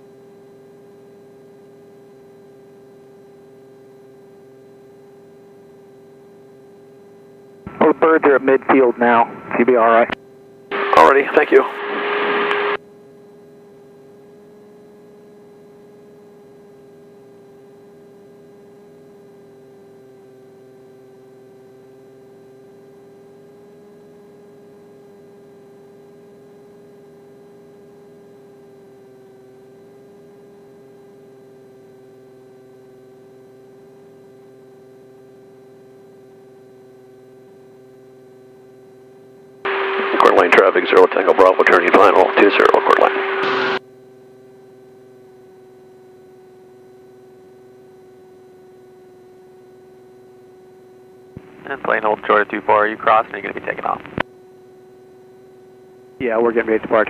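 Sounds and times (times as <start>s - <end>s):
steady intercom hum: 7.6s - 12.8s, 39.7s - 43.8s, 50.9s - 57.0s.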